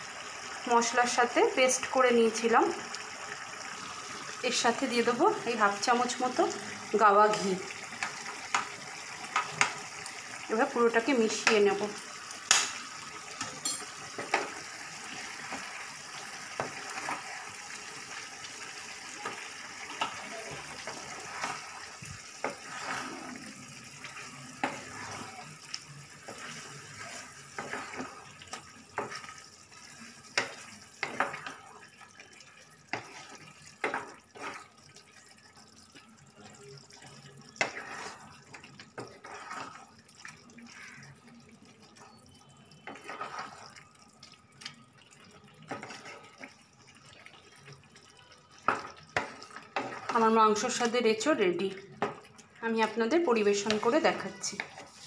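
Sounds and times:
curry cooking on stove: 0.0 - 55.0
spatula scraping pan: 19.2 - 31.8, 32.9 - 34.8, 37.6 - 40.0, 42.8 - 43.8, 45.7 - 46.6, 48.7 - 50.9, 53.6 - 55.0.

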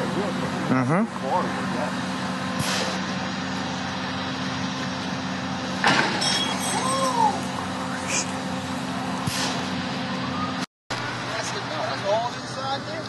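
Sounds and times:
truck engine running: 0.0 - 13.0
car landing with thud and rattle: 5.8 - 6.7.

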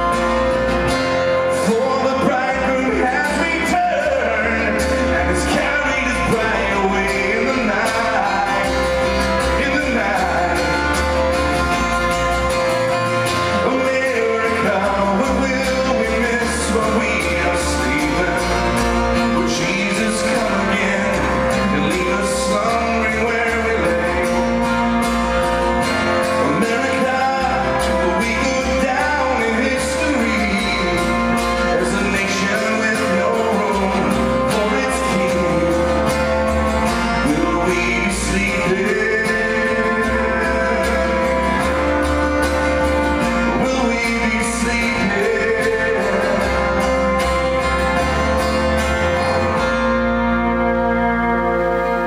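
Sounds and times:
bowed violin: 0.0 - 52.0
keyboard playing: 0.0 - 52.0
strummed acoustic guitars: 0.0 - 52.0.

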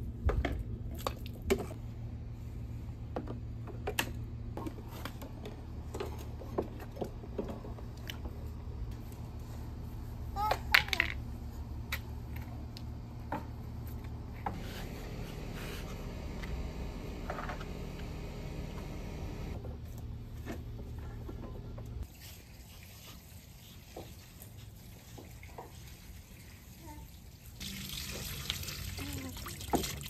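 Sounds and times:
constant low hum: 0.0 - 22.1
water trickling: 27.6 - 30.0.

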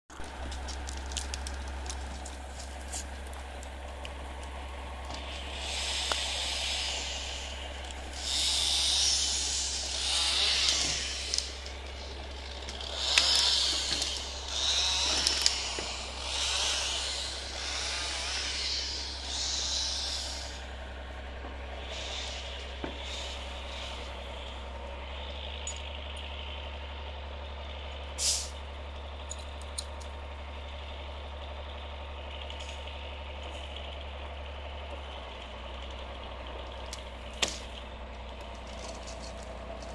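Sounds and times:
truck engine running: 0.1 - 39.9
loud hissing rushes: 5.2 - 21.0, 21.6 - 24.5.

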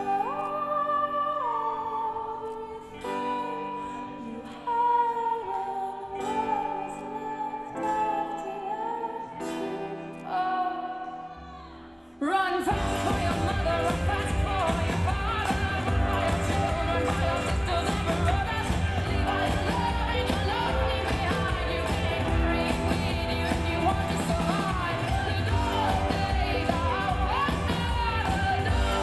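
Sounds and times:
drums and full band: 12.7 - 29.0.

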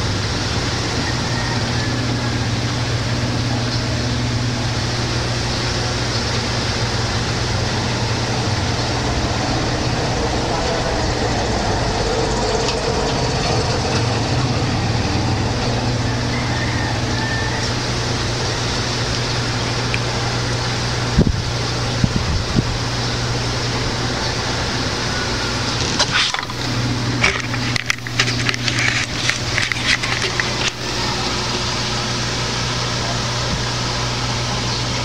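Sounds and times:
low hum and hiss: 0.0 - 35.0
handling clicks and rustles: 25.8 - 31.0.

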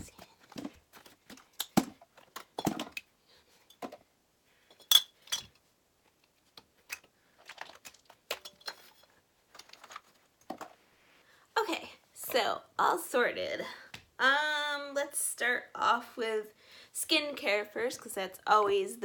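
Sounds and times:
plastic containers clicking and rattling: 0.0 - 3.1, 6.6 - 10.8.

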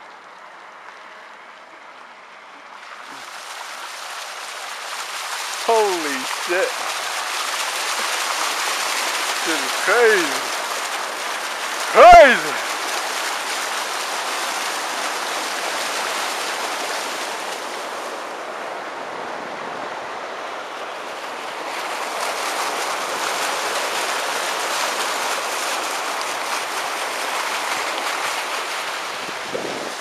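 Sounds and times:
floodwater rushing: 0.0 - 30.0.

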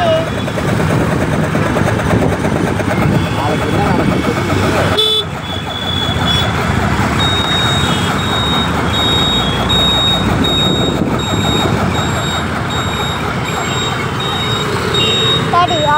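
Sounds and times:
road traffic: 0.0 - 15.9
wind: 0.0 - 15.9
high electronic beeping: 2.8 - 15.9.

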